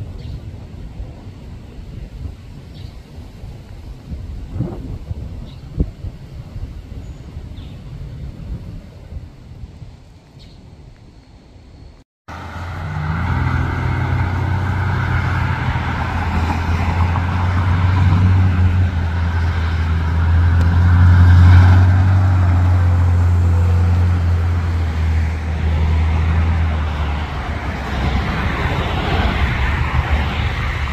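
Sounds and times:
bus engine droning past: 12.3s - 30.9s
cars passing tyre noise: 12.3s - 30.9s.

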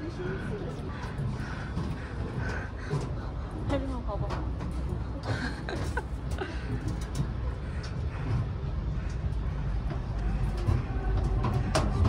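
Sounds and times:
faint voices: 0.0s - 12.0s
wind rumbling on microphone: 0.0s - 12.0s.

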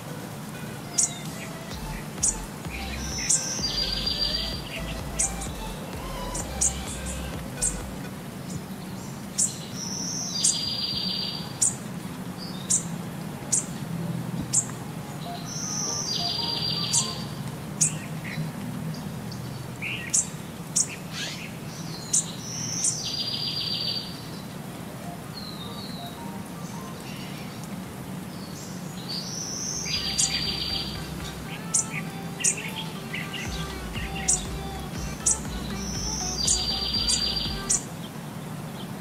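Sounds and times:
buzzy bird trill: 0.9s - 7.9s, 29.8s - 37.8s
bird chirping: 0.9s - 11.8s, 14.5s - 18.1s, 28.3s - 37.9s.

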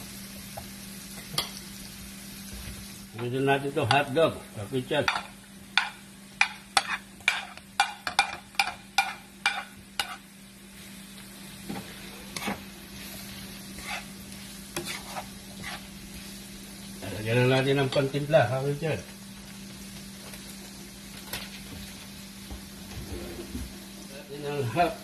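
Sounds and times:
meat and vegetables sizzling: 0.0s - 25.0s
spatula clicking and scraping: 5.0s - 10.2s, 13.7s - 15.9s.

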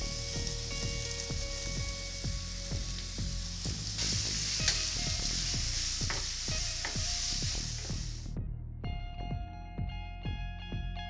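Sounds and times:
vegetables sizzling in hot oil: 0.0s - 8.2s.

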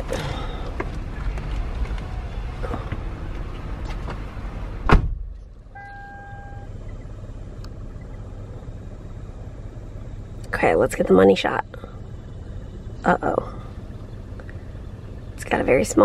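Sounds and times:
outside noise: 0.0s - 16.0s
car door slamming: 4.8s - 6.5s
short electronic beep: 5.7s - 6.7s.

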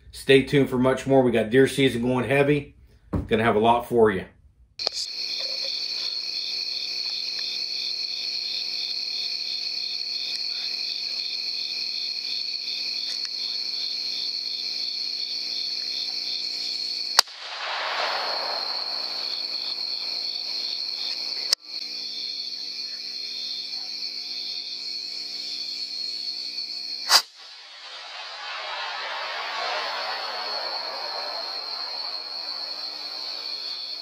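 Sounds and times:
insects trilling and chirping: 4.8s - 34.0s
sharp click: 27.1s - 27.4s.

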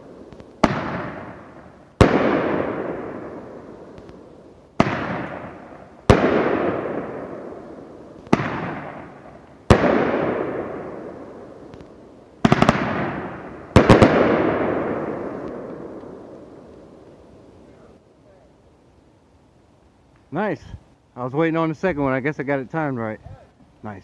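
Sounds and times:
fireworks bursting with sharp bangs: 0.0s - 18.0s.

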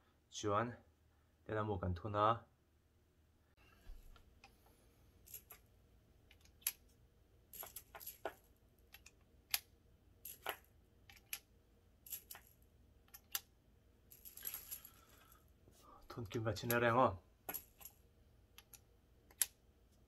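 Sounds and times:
metal cartridges clinking: 5.2s - 5.7s, 7.5s - 9.6s, 10.2s - 11.4s, 12.0s - 13.4s, 14.1s - 15.4s, 16.6s - 18.0s.

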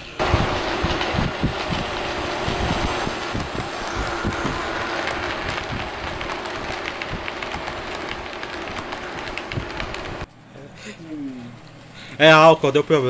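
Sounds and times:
model train rolling rumble: 0.0s - 10.3s
wheels clicking over track: 0.0s - 10.3s
steady hum: 0.0s - 10.5s.

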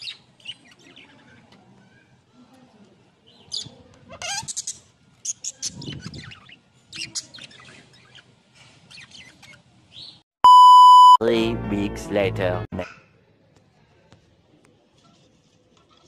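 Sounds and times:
steady test-tone beep: 10.4s - 11.2s.

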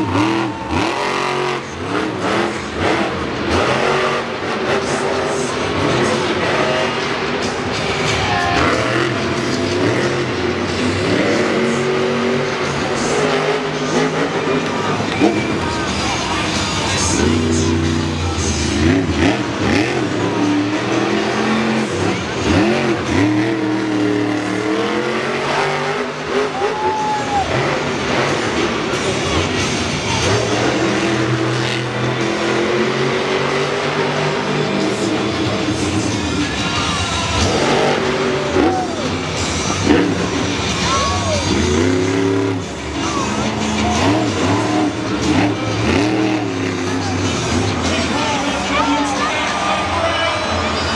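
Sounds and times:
engine revving hard: 0.0s - 15.7s, 17.0s - 26.8s, 37.3s - 48.9s
crowd noise: 0.0s - 50.9s.

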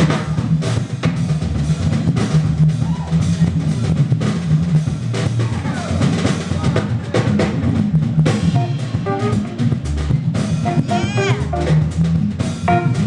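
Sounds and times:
drum kit groove: 0.0s - 13.0s
low organ notes: 8.5s - 10.0s, 10.6s - 13.0s.

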